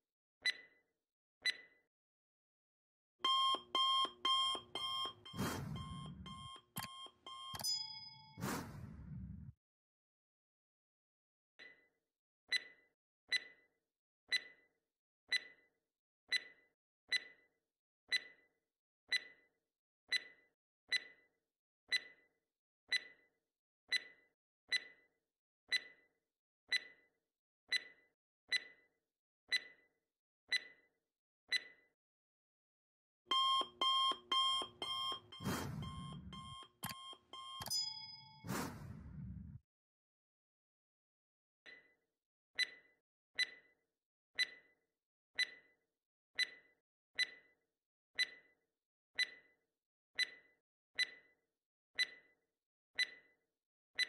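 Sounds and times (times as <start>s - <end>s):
alarm clock ringing: 3.2s - 8.7s, 33.3s - 38.5s
clock-like ticks: 3.2s - 9.1s, 14.3s - 14.6s, 15.3s - 15.6s, 33.3s - 39.0s, 47.2s - 47.4s, 48.2s - 48.4s, 49.2s - 49.4s, 52.0s - 52.2s, 53.0s - 53.2s.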